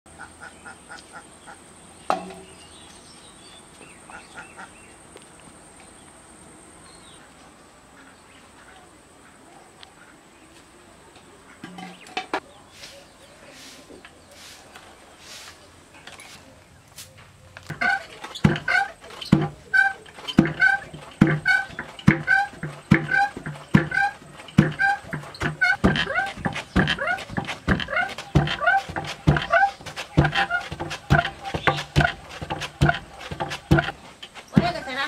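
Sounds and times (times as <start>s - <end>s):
small birds chirping: 8.0s - 35.0s
chickens clucking: 17.6s - 35.0s.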